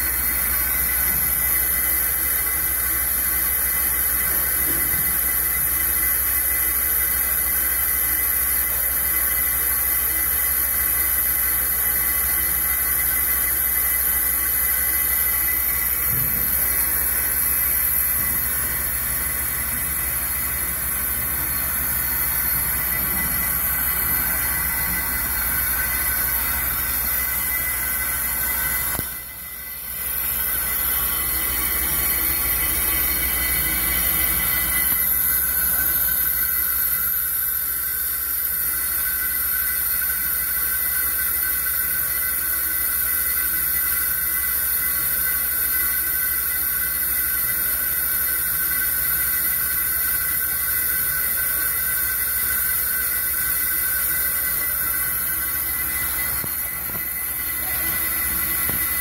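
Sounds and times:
brake lathe machining rotor: 0.0s - 59.0s.

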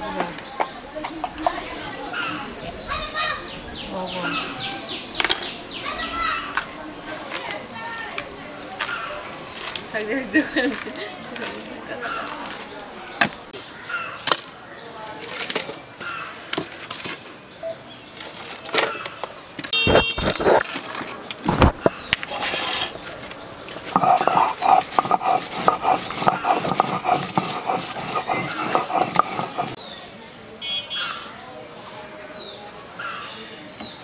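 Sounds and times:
stone roller grinding onion: 19.9s - 20.7s, 23.8s - 29.8s
stone roller knocking on stone slab: 23.9s - 29.8s.

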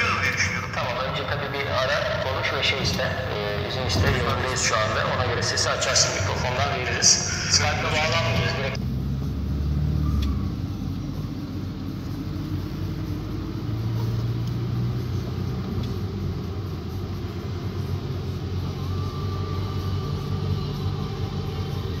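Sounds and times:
low rumble: 0.0s - 13.6s.

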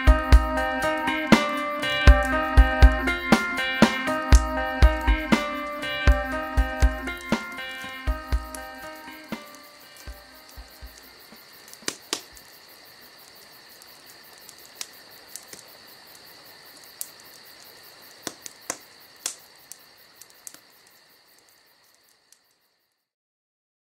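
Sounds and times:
high steady chirring: 0.0s - 11.2s
sharp clicks: 11.7s - 12.5s.

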